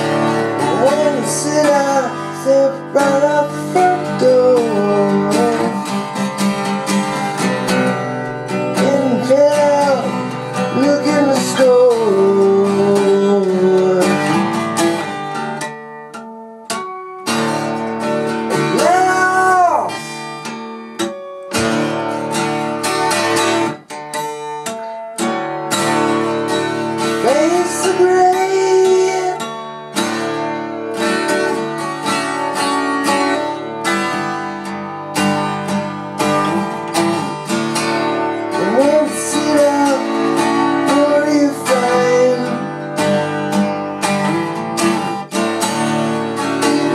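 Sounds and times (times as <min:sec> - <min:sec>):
acoustic guitar strumming chords: 0:00.0 - 0:46.9
person singing wordless notes: 0:00.7 - 0:05.8, 0:08.8 - 0:14.3, 0:18.5 - 0:20.2, 0:27.2 - 0:29.5, 0:38.5 - 0:42.8.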